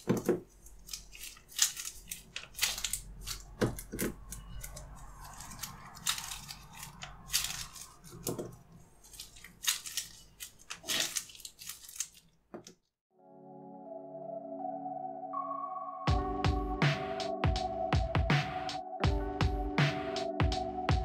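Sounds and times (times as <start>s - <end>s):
gloves crinkling and dough squishing: 0.0s - 13.0s.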